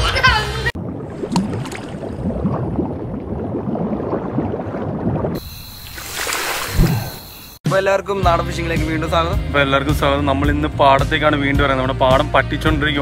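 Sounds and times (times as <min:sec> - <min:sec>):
underwater bubbling: 0:00.7 - 0:07.2.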